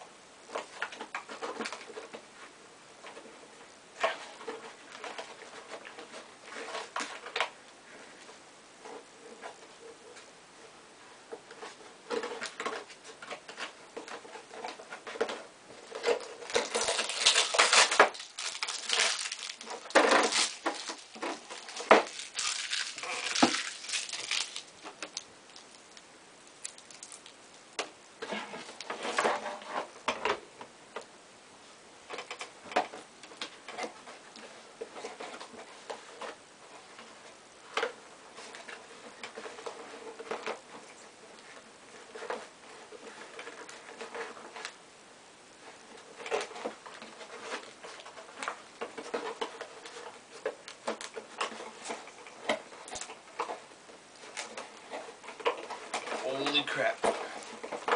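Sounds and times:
packaging rustling and crinkling: 0:11.5 - 0:30.2, 0:45.6 - 0:57.9.

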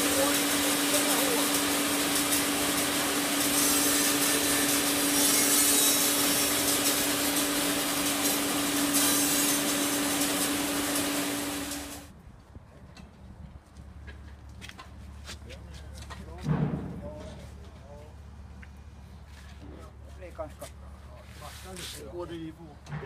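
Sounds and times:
saw blade rasping through wood: 0:00.0 - 0:12.0
band saw humming: 0:00.0 - 0:12.1.

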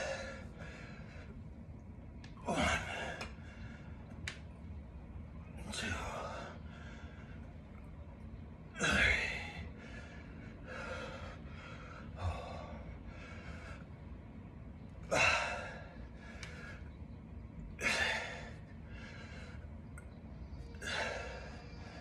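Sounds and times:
man breathing hard: 0:00.0 - 0:01.5, 0:05.7 - 0:07.7, 0:08.8 - 0:14.3, 0:15.0 - 0:17.0, 0:17.8 - 0:19.8, 0:20.8 - 0:22.0.

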